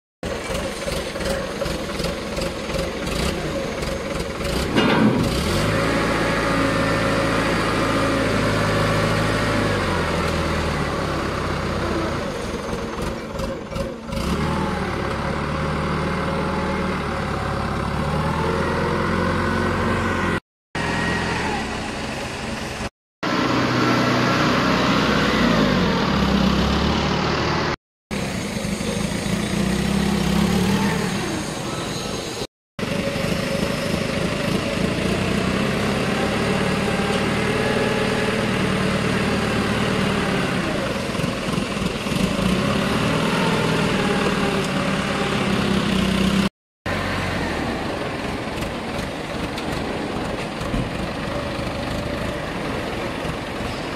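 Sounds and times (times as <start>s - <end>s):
forklift engine revving: 0.2s - 53.9s.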